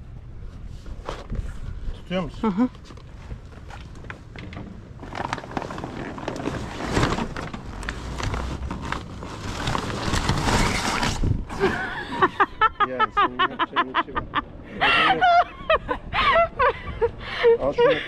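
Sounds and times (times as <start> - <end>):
sailcloth rustling and scraping: 4.9 - 11.8
voices: 12.8 - 18.0.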